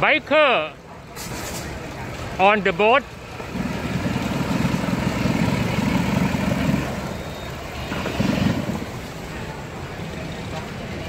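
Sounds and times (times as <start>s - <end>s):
motorboat engine rumbling: 3.0s - 11.0s.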